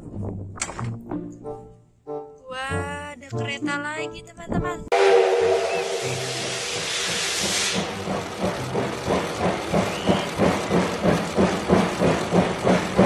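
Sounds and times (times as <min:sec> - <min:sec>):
steam hissing: 0:04.9 - 0:13.0
steam locomotive exhaust chuffing: 0:04.9 - 0:13.0.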